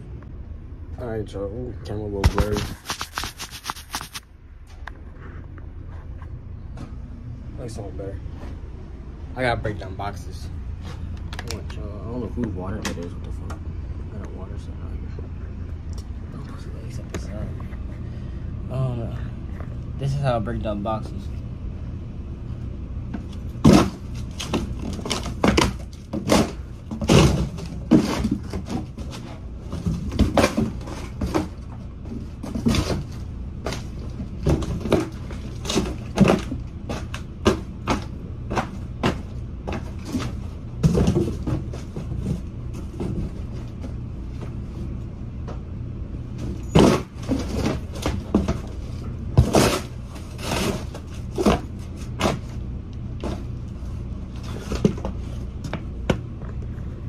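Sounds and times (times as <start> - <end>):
steady low hum: 0.0 - 57.0
cardboard crunching and tearing: 2.2 - 4.2, 49.4 - 52.6.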